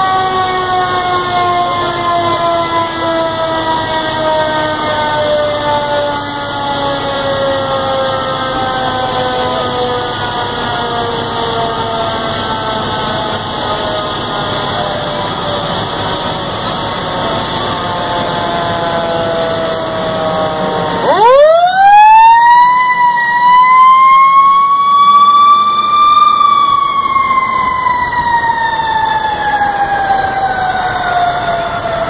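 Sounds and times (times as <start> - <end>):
fire engine siren: 0.0 - 32.0.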